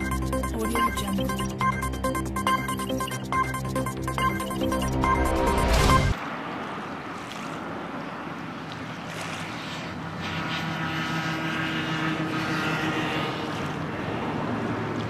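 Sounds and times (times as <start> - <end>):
powerboat engines droning: 7.9 - 15.0.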